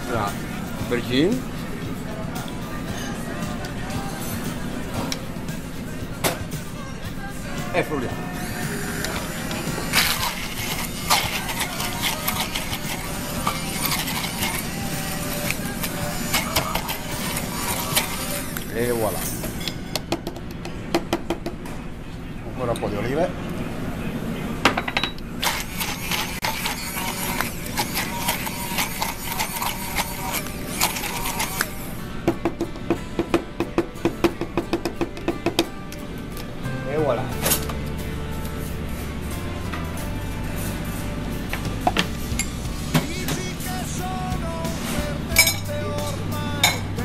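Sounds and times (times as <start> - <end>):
immersion blender motor hum: 8.4 - 18.7, 25.4 - 31.7.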